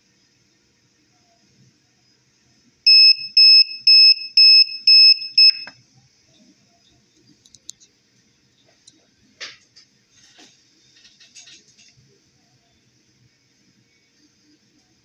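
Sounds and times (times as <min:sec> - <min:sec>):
short high-pitched alarm beeps: 0:02.9 - 0:05.7.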